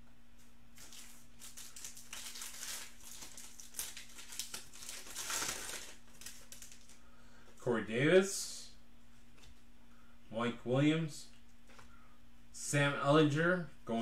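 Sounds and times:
foil card pack crinkling: 0.8s - 7.0s.

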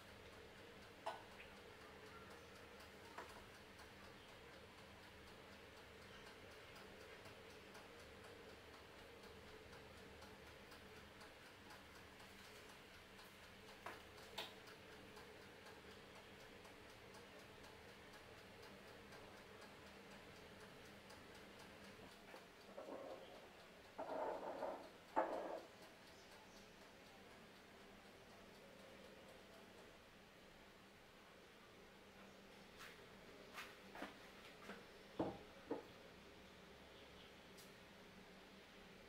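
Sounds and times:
faint regular ticking: 0.0s - 33.2s
soft clicks of glass bottles: 24.0s - 25.7s.

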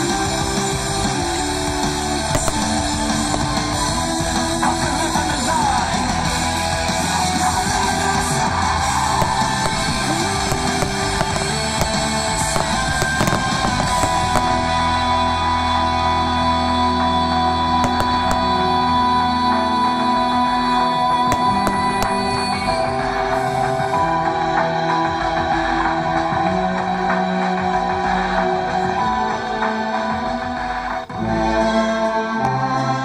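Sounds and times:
rock music with guitar: 0.0s - 33.0s
fireworks cracking: 1.3s - 16.0s, 17.8s - 19.2s, 21.2s - 23.8s.

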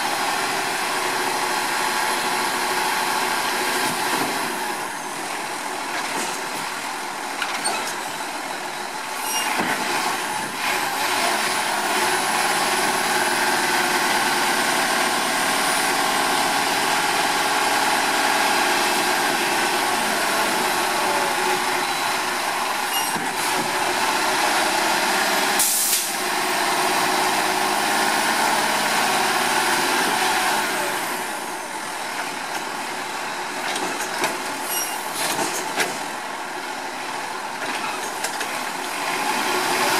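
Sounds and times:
diesel engine revving: 9.8s - 31.6s, 38.9s - 39.9s
hydraulic hiss: 25.6s - 26.2s.

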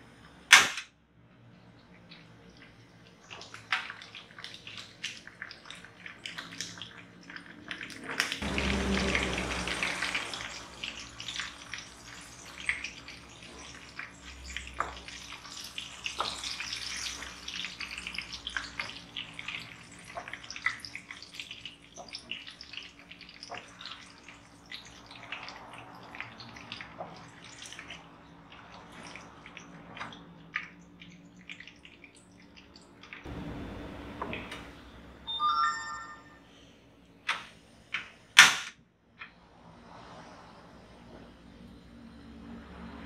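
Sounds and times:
oil crackling and popping: 2.1s - 33.2s
hot oil sizzling in a wok: 8.4s - 24.1s.

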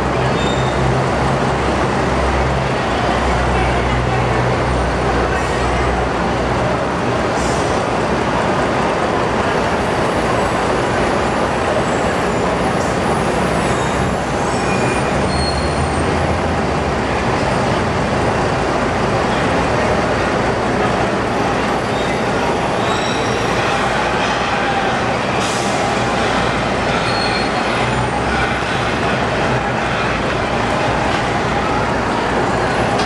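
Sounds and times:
bus engines running: 0.0s - 33.0s.

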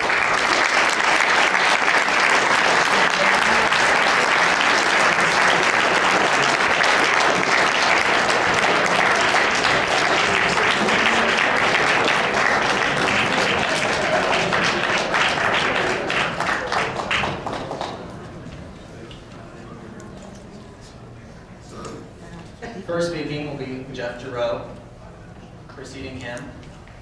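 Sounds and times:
audience applauding: 0.0s - 18.4s.

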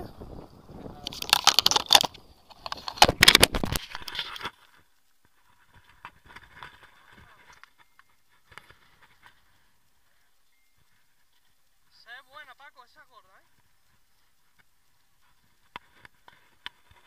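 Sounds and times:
microphone handling noise: 0.0s - 4.6s
faint ticks: 4.1s - 17.0s.

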